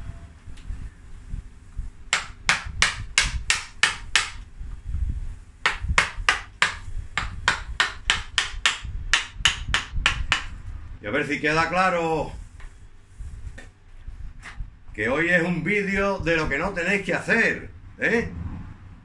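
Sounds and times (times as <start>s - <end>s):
hammer striking chisel: 2.1s - 4.4s, 5.6s - 10.5s.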